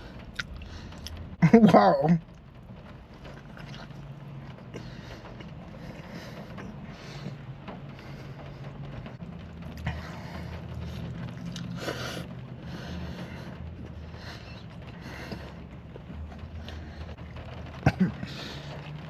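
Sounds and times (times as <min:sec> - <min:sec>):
car cabin hum: 0:00.0 - 0:19.0
soft chewing: 0:03.2 - 0:07.4, 0:09.7 - 0:12.3.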